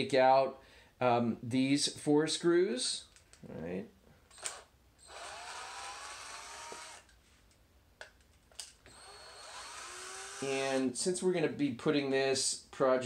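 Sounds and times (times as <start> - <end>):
power driver motor whining: 4.3 - 7.1, 8.9 - 10.5.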